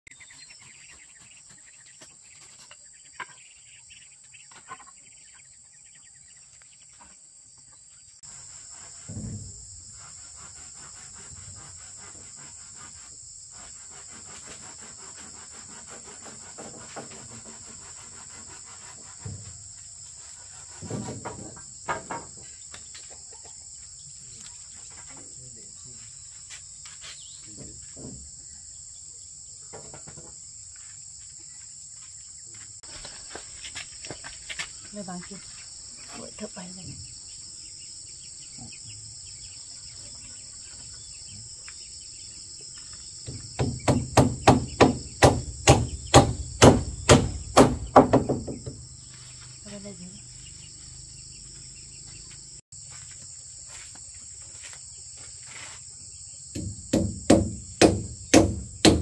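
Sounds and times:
insects chirring: 0.1 - 59.0
dull knocks and thumps: 8.9 - 10.0, 20.7 - 22.6, 42.8 - 49.0, 56.5 - 59.0.

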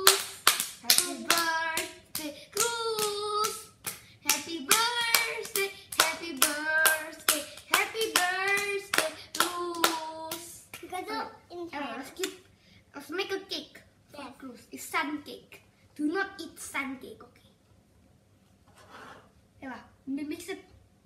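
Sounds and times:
children clapping in rhythm: 0.0 - 10.9.

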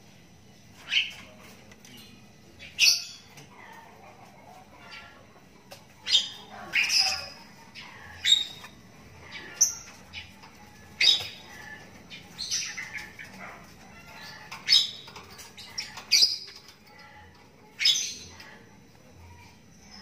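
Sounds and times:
bird chick chirping squawks: 6.0 - 18.6.

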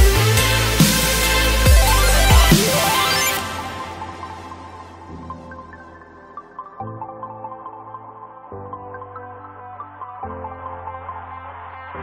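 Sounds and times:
electronic dance music: 0.0 - 8.7.

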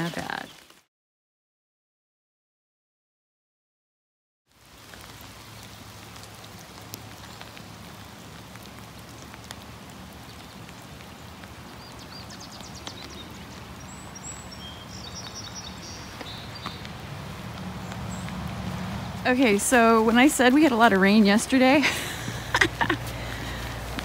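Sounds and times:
light rain: 0.0 - 0.9, 4.5 - 24.0
water dripping: 4.5 - 24.0
bird chirps and trills: 11.7 - 17.0.

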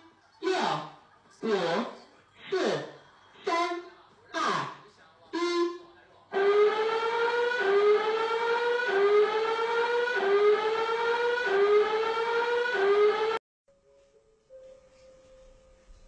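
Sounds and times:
rising alarm tone: 6.4 - 13.4.

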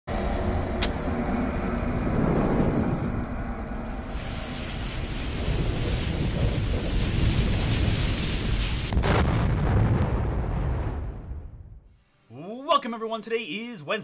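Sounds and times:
deep rumble: 0.1 - 11.9
burning fuse hiss: 1.7 - 9.6.

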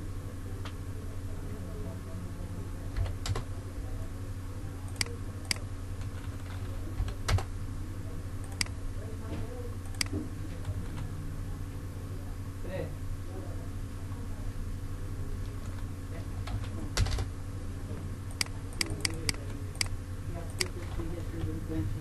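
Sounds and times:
steady low hum: 0.0 - 22.0
keyboard and mouse clicks: 4.9 - 7.5, 8.5 - 8.8, 9.9 - 10.2, 18.3 - 19.9, 20.6 - 20.9.

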